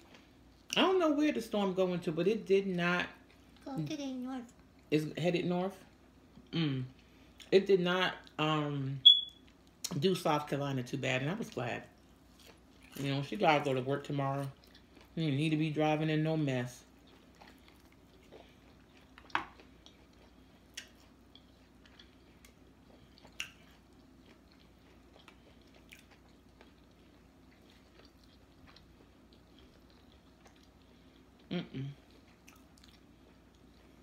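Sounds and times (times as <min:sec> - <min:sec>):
chewing and mouth sounds: 0:12.0 - 0:13.4, 0:14.4 - 0:15.2, 0:16.9 - 0:34.0
person humming: 0:31.5 - 0:32.0.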